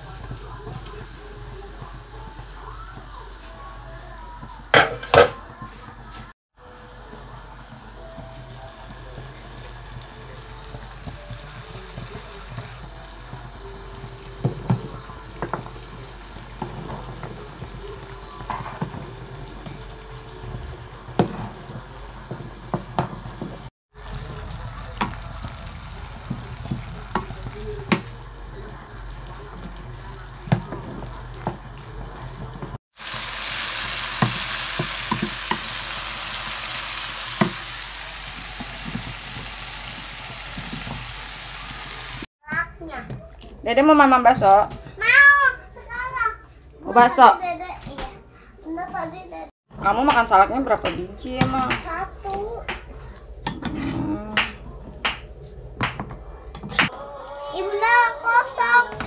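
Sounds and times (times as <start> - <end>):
spice paste sizzling in pan: 6.8 - 30.4, 32.9 - 42.3.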